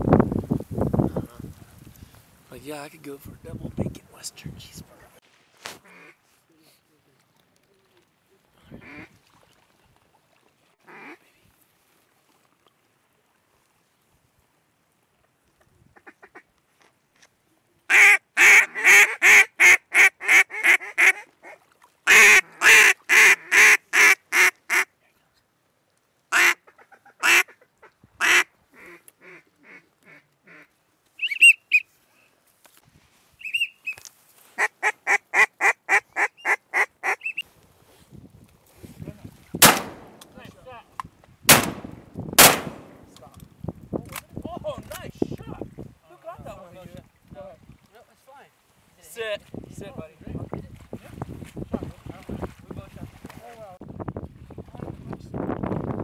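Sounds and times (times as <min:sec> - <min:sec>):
duck call quacking: 0:05.8 - 0:06.2, 0:08.8 - 0:09.1, 0:10.9 - 0:11.2, 0:17.9 - 0:21.3, 0:22.1 - 0:24.9, 0:26.3 - 0:27.6, 0:28.2 - 0:31.8, 0:34.6 - 0:37.4
shotgun shots: 0:39.6 - 0:40.4, 0:41.5 - 0:43.2.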